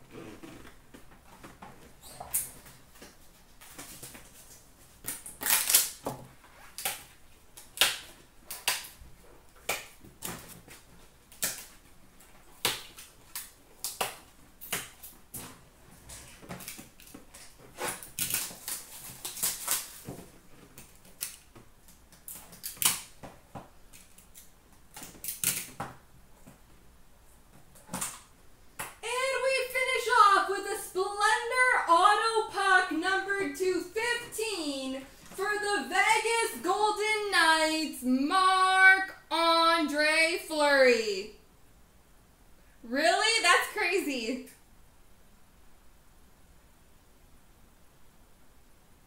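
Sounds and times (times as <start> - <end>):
foil wrappers crinkling: 2.6 - 11.8, 12.4 - 23.2.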